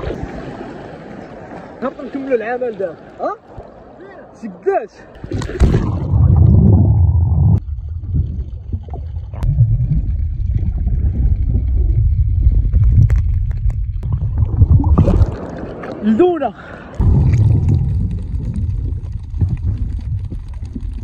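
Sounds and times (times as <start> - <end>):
sea water churning: 0.0 - 4.1, 5.0 - 21.0
muffled underwater rumble and gurgle: 5.6 - 16.0, 17.0 - 21.0.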